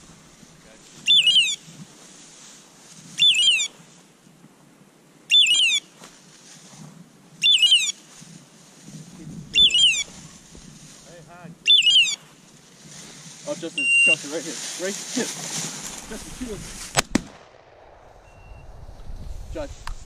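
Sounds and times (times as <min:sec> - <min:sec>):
electronic squawk from dog collar: 0:01.1 - 0:01.6, 0:03.2 - 0:03.7, 0:05.3 - 0:05.8, 0:07.4 - 0:07.9, 0:09.6 - 0:10.0, 0:11.7 - 0:12.2.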